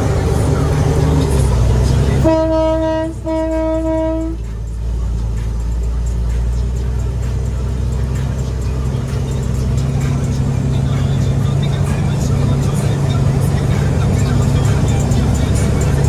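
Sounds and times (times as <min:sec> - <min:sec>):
diesel truck engine running: 0:00.0 - 0:16.0
truck air horn blasts: 0:02.2 - 0:04.5.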